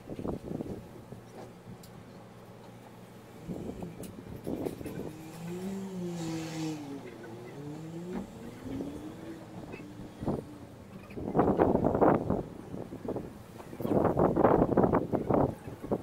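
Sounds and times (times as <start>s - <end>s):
moped engine revving: 3.4s - 12.4s.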